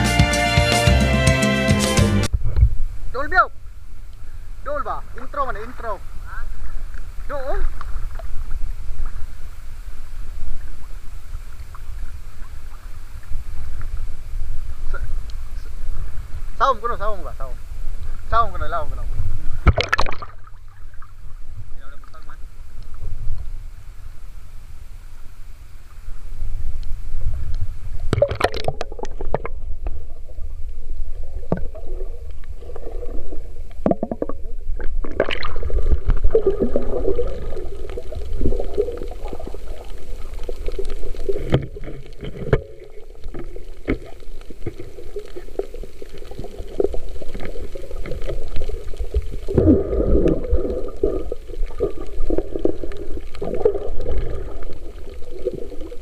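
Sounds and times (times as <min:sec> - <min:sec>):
muffled underwater rumble: 0:02.3 - 0:56.0
underwater knocks and splashes: 0:19.2 - 0:21.3, 0:28.0 - 0:56.0.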